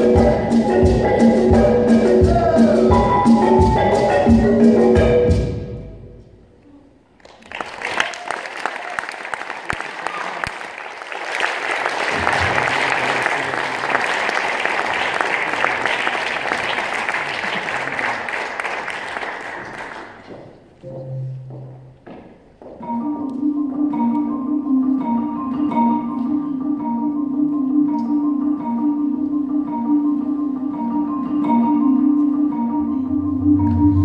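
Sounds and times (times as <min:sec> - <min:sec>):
live band playing: 0:00.0 - 0:06.1, 0:22.8 - 0:34.0
audience applauding: 0:07.2 - 0:20.6.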